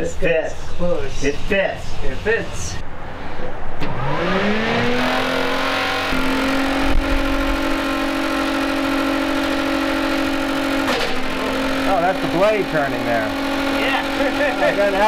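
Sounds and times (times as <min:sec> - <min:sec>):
electric fan motor whine: 0:03.8 - 0:15.0.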